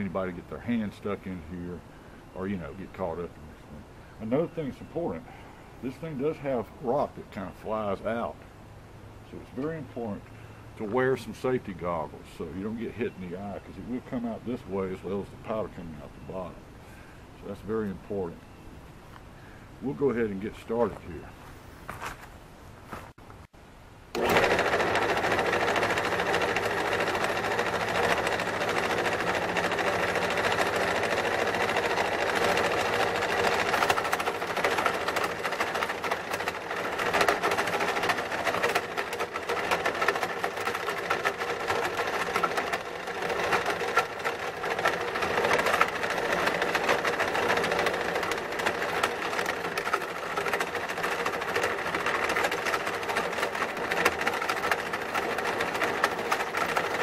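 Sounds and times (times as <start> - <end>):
motor hum: 24.1 - 57.0
rock crusher rattling: 24.2 - 57.0.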